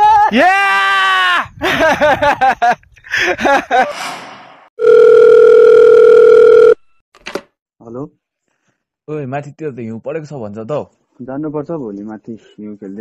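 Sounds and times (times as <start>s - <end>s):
telephone ringback tone: 4.8s - 6.8s.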